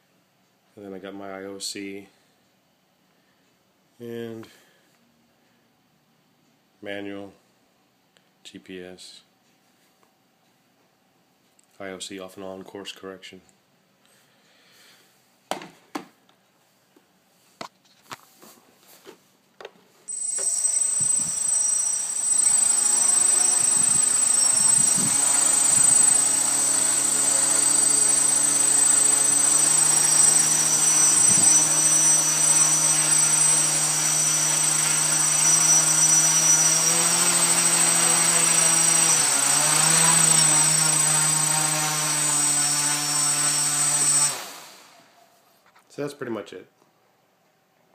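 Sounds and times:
drone motors whirring: 20.1s - 44.9s.

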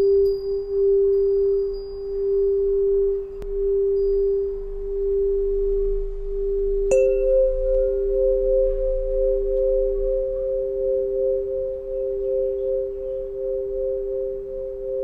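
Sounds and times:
higher tuning pipe ringing: 0.0s - 15.0s
low tuning pipe tone: 0.0s - 15.0s
tuning pipe tap click: 9.5s - 9.8s.

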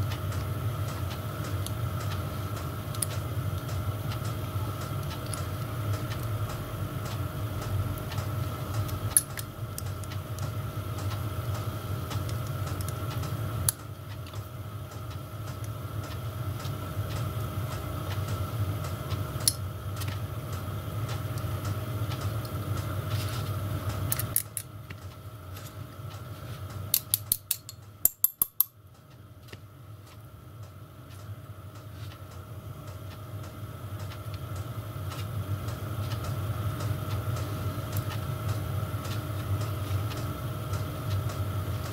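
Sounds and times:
steady low hum: 0.0s - 41.9s.

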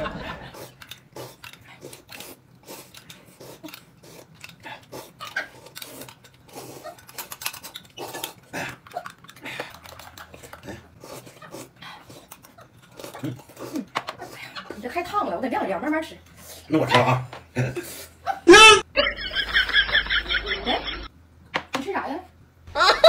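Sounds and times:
chewing and lip-smacking: 0.4s - 14.4s
slurping: 0.4s - 14.8s.

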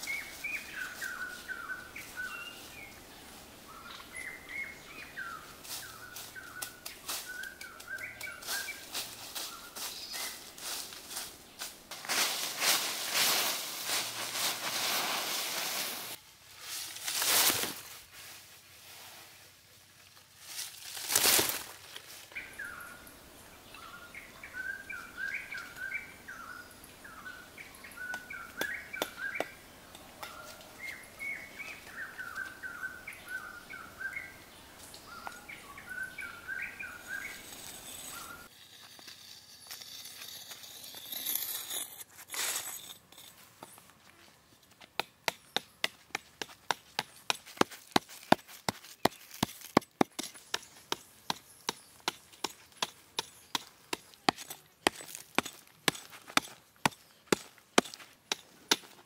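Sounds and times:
bird chirping: 0.0s - 10.5s, 22.3s - 38.5s
leaves being swept: 4.5s - 22.8s, 34.9s - 40.5s
dry leaves rustling: 5.6s - 22.8s, 34.8s - 43.5s.

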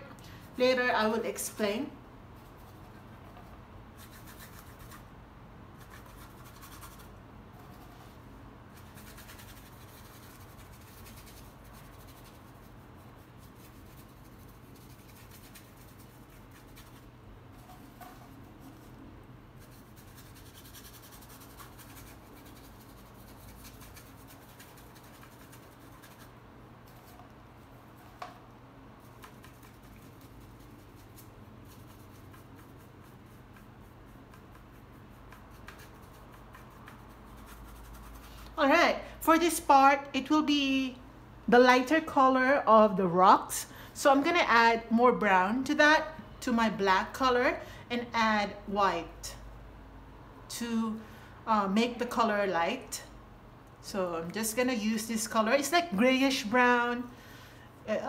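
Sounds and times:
low steady hum: 0.0s - 58.0s
paintbrush rubbing on canvas: 5.8s - 28.4s, 29.0s - 38.5s.

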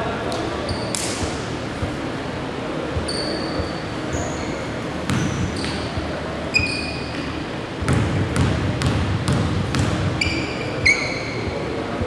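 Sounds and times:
sneaker squeaks: 0.6s - 1.3s, 3.0s - 8.0s, 9.7s - 11.8s
basketball bouncing on wood floor: 7.8s - 10.3s.

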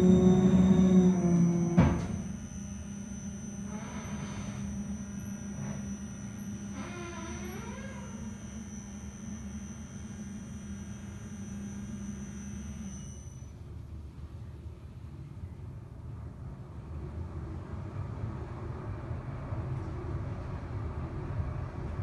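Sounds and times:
wavering squeaks: 0.0s - 13.4s
elevator motor hum and whine: 0.0s - 22.0s.

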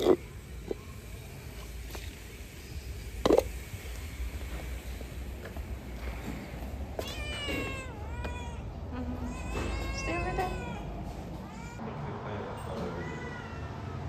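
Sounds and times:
cat meowing: 7.0s - 10.8s.

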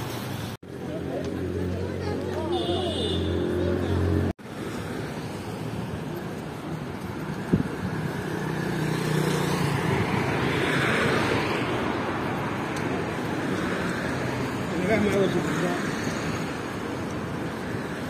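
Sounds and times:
city street traffic: 0.0s - 18.0s.

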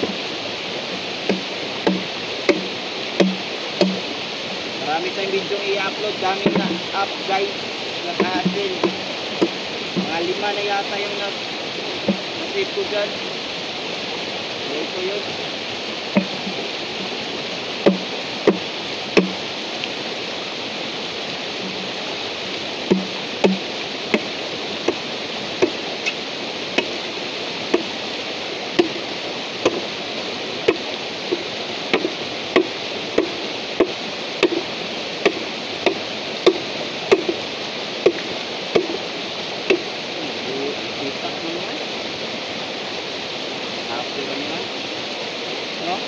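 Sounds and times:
shallow stream rushing: 0.0s - 46.0s
machete striking bamboo: 1.3s - 4.1s, 16.2s - 16.4s, 17.8s - 19.4s, 22.9s - 24.3s, 26.8s - 27.0s, 28.8s - 29.0s, 29.6s - 29.9s, 30.7s - 37.4s, 38.8s - 39.0s.

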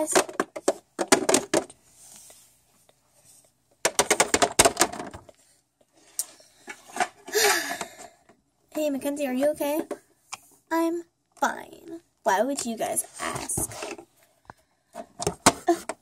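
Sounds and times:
plastic toy figures clattering: 0.0s - 1.7s, 3.8s - 5.3s.

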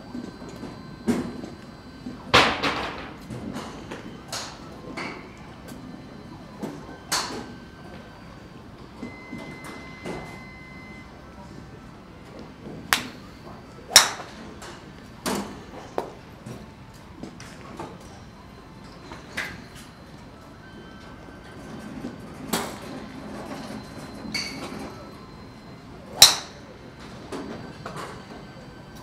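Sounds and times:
golf clubs striking balls: 13.9s - 16.2s, 26.1s - 26.6s.

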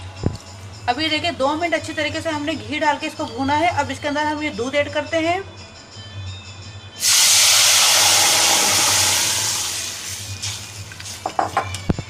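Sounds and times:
milk sizzling in hot pot: 7.0s - 12.0s.

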